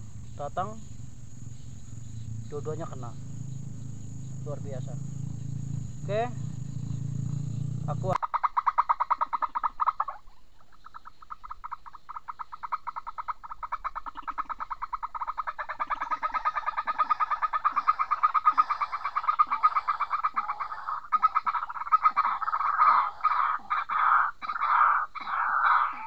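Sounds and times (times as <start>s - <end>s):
animal calling in pulsed trill: 10.9s - 26.0s.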